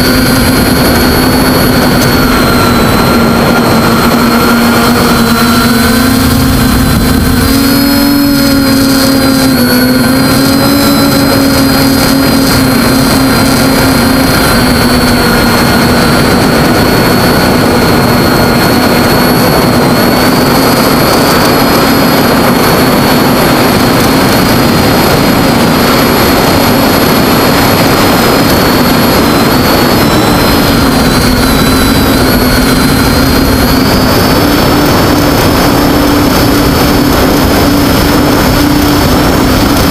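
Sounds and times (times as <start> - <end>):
drone motors buzzing: 0.0 - 39.9
rushing air: 0.0 - 39.9.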